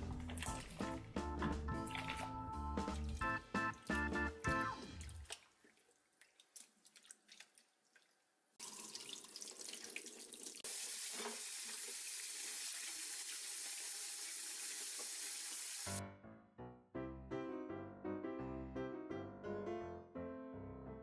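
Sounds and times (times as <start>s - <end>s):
leaves splashing in water: 0.0s - 1.1s, 1.8s - 3.2s, 4.8s - 7.8s
tap water running into bowl: 0.1s - 4.0s, 7.0s - 15.9s.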